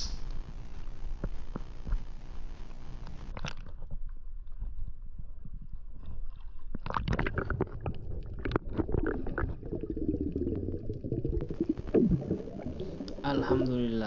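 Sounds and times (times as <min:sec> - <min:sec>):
muffled underwater rumble: 0:00.0 - 0:14.0
knocks and crackles: 0:00.3 - 0:05.6
water bubbling: 0:05.3 - 0:14.0.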